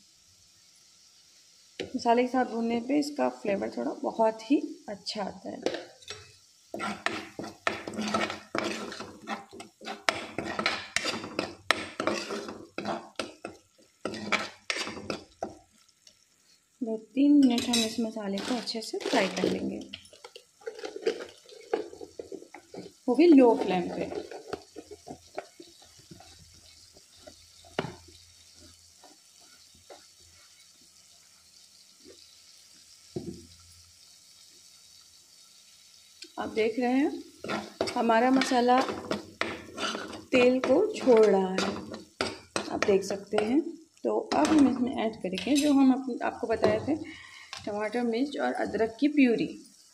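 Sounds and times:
spice paste sizzling in oil: 0:00.0 - 0:49.9
ladle scraping and clinking pan: 0:05.6 - 0:13.4, 0:14.0 - 0:15.3, 0:17.4 - 0:22.9, 0:23.5 - 0:25.5, 0:37.4 - 0:42.7.

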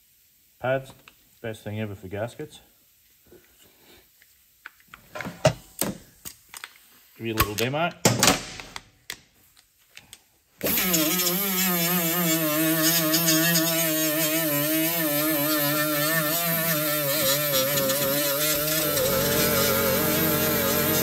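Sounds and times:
air die grinder whining: 0:10.6 - 0:21.0
pad scrubbing hiss: 0:10.6 - 0:21.0.

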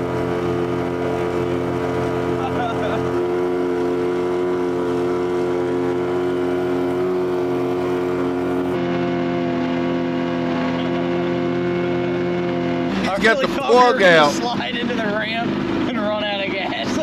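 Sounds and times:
outboard motors droning: 0:00.0 - 0:17.0.

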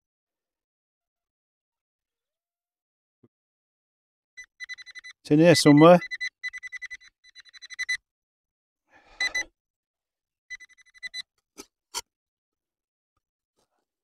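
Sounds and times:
metal detector pulsing beep: 0:04.4 - 0:08.0, 0:09.2 - 0:09.5, 0:10.5 - 0:11.2.

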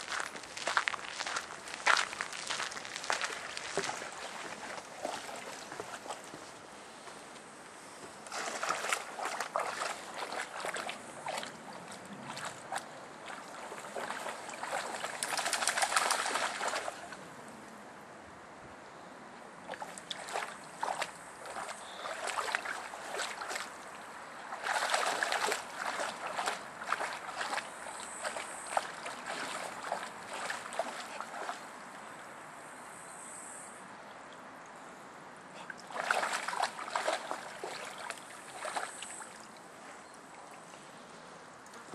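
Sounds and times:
dog splashing in stream: 0:00.0 - 0:06.4, 0:08.2 - 0:17.2, 0:19.7 - 0:32.2, 0:35.6 - 0:39.7.

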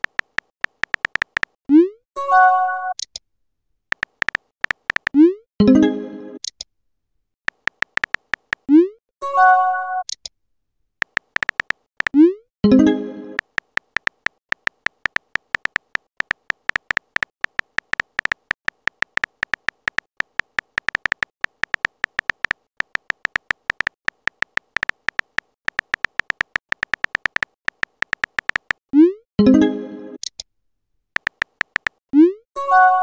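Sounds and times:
phone keyboard tap clicks: 0:00.0 - 0:01.6, 0:03.9 - 0:05.2, 0:07.5 - 0:08.7, 0:11.0 - 0:12.2, 0:13.4 - 0:28.8, 0:31.2 - 0:32.0.

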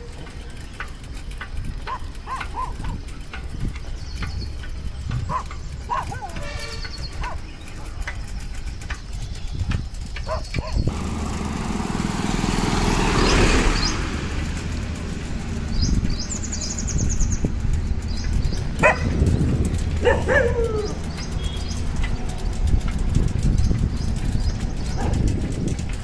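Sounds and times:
low engine hum: 0:00.0 - 0:26.0
vehicle passing: 0:10.3 - 0:26.0.

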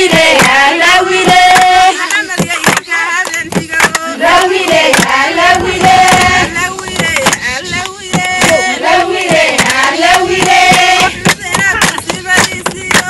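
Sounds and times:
hands clapping in rhythm: 0:00.0 - 0:13.0
women singing together: 0:00.0 - 0:13.0.

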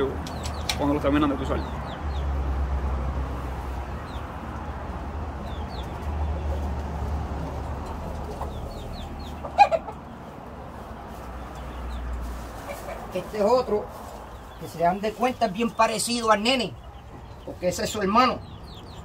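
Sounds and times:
chicken clucks and chirps: 0:03.4 - 0:19.0
rooster squawking: 0:08.4 - 0:10.1, 0:12.6 - 0:13.1.

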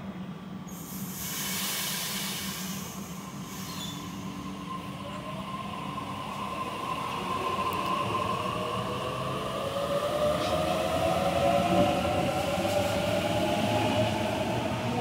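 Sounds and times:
train rumble: 0:00.1 - 0:15.0
air hiss: 0:00.7 - 0:04.6.

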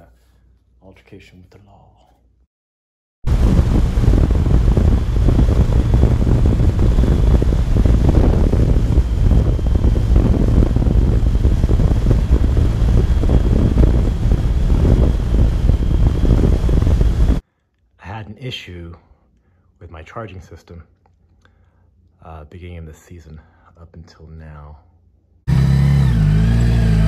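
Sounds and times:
faint high whine: 0:03.3 - 0:17.4
motorcycle engine cruising: 0:03.3 - 0:17.4, 0:25.5 - 0:27.0
wind rushing over microphone: 0:03.3 - 0:17.4.

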